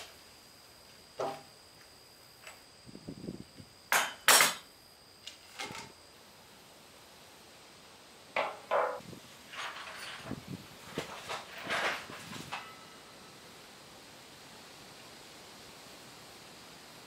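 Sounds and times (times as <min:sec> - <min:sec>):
metal lid clanking on wooden floor: 0:08.4 - 0:10.3.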